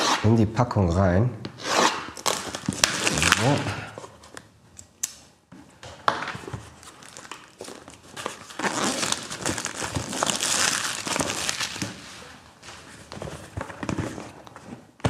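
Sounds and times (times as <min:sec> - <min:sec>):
packaging crinkling and tearing: 0:02.2 - 0:04.4, 0:06.6 - 0:12.5.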